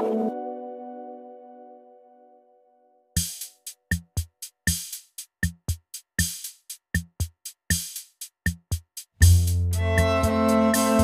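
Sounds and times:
programmed drum beat: 0:03.2 - 0:11.0.

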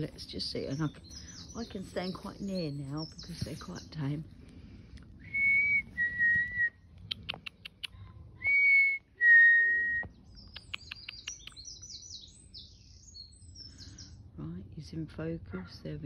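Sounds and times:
small birds chirping: 0:00.0 - 0:04.3, 0:06.8 - 0:08.1, 0:10.0 - 0:14.6.

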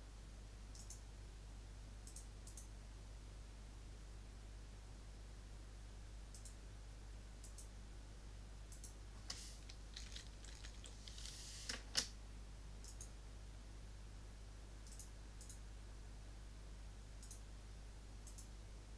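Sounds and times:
computer mouse clicking: 0:00.7 - 0:01.0, 0:02.0 - 0:02.7, 0:06.3 - 0:06.6, 0:07.4 - 0:07.7, 0:08.7 - 0:12.1, 0:12.8 - 0:13.2, 0:14.8 - 0:15.6, 0:17.2 - 0:17.4, 0:18.2 - 0:18.5
keyboard typing: 0:08.7 - 0:12.1.

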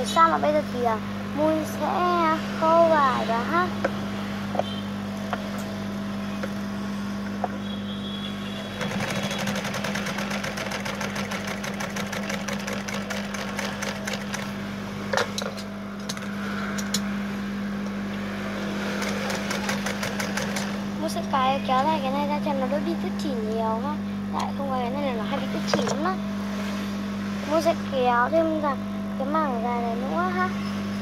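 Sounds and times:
sewing machine motor hum: 0:08.0 - 0:17.0, 0:18.1 - 0:23.4
sewing needle ticking: 0:08.8 - 0:14.4, 0:19.0 - 0:20.7.

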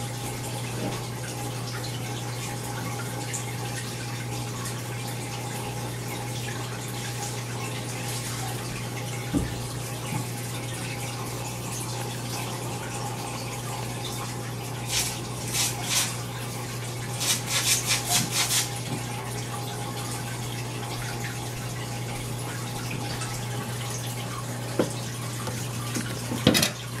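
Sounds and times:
aquarium water trickling: 0:00.0 - 0:27.0
filter humming: 0:05.6 - 0:27.0.

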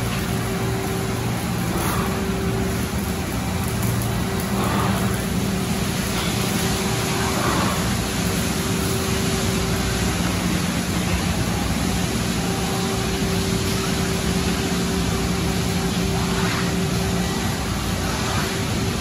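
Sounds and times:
car wash machinery rushing: 0:00.0 - 0:19.0
low electric hum: 0:00.0 - 0:19.0.

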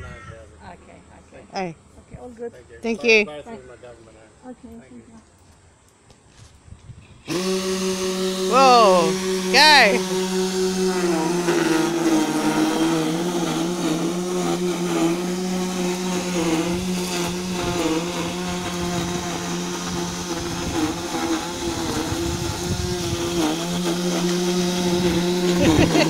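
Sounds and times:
toy truck motor humming: 0:07.3 - 0:26.0.

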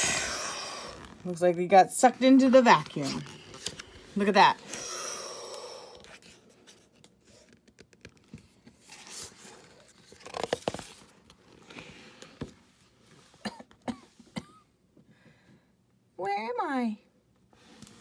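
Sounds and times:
book page turning: 0:02.4 - 0:04.8, 0:05.9 - 0:12.4.

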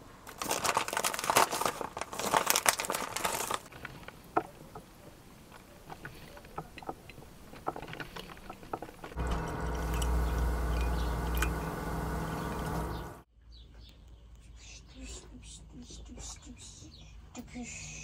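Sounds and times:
foil bag crinkling: 0:00.2 - 0:04.1
coffee maker ticks and drips: 0:09.2 - 0:13.2.

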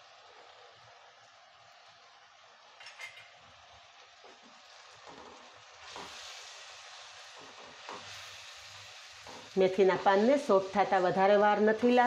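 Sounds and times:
faint sizzling in a pot: 0:00.0 - 0:12.0.

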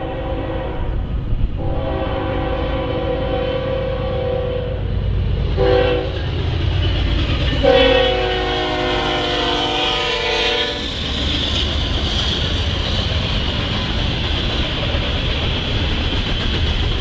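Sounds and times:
locomotive air horn: 0:00.0 - 0:04.9, 0:05.6 - 0:06.2, 0:07.6 - 0:10.9
diesel locomotive rumble: 0:00.0 - 0:17.0
train rolling over rails: 0:00.0 - 0:17.0.

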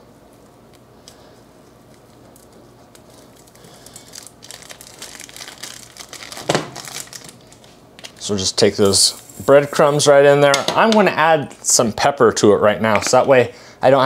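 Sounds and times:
plastic wrapping crinkling and tearing: 0:01.9 - 0:08.5.

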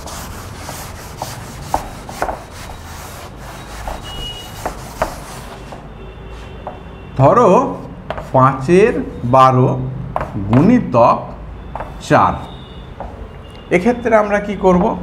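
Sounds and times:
duster rubbing on chalk blackboard: 0:00.0 - 0:06.8.

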